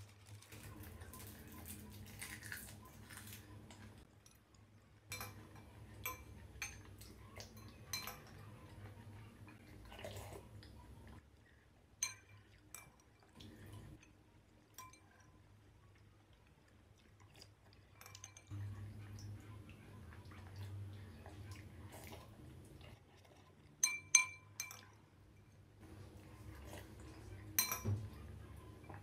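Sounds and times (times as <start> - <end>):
metal utensils clinking on glass bowl: 0.4 - 10.3, 12.0 - 15.4, 17.9 - 19.3, 23.8 - 25.6, 26.6 - 29.0.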